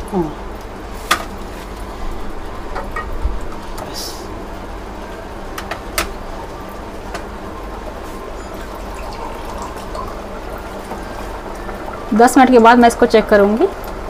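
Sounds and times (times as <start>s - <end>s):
gas stove low rumble: 0.0s - 14.0s
syrup simmering and bubbling: 6.3s - 12.1s.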